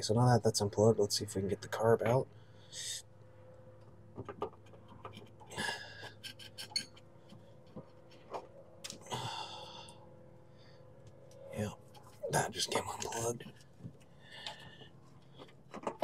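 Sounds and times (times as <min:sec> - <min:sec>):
faint steady hum: 0:00.0 - 0:16.0
small clicks and knocks: 0:04.1 - 0:05.5, 0:13.4 - 0:16.0
breathy exhales: 0:09.0 - 0:10.8.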